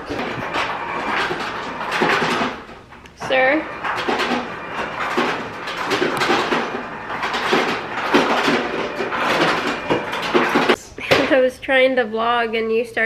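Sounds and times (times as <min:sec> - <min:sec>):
ice cubes clattering from dispenser: 0:03.8 - 0:10.8.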